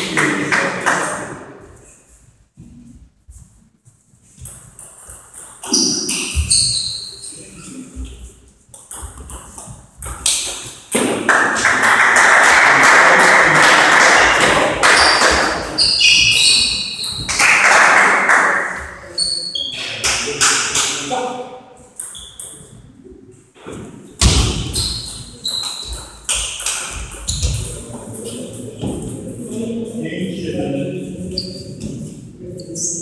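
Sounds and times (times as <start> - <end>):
crowd noise: 0.0 - 1.8, 11.0 - 21.4, 26.9 - 33.0
sports shoes squeaking: 4.4 - 8.2, 14.8 - 17.3, 19.0 - 19.8, 22.0 - 22.8, 24.6 - 28.4, 31.3 - 33.0.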